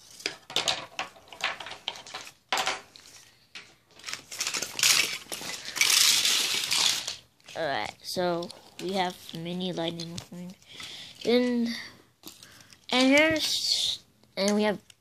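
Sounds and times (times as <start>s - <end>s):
toy cars clinking and clattering: 0.1s - 2.9s, 4.3s - 11.8s, 12.5s - 13.8s.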